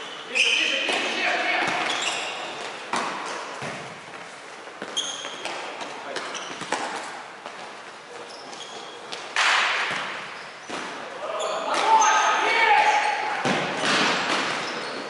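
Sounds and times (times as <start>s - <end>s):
sneaker squeaks: 0.0s - 15.0s
ball kicked and bouncing: 2.9s - 4.0s.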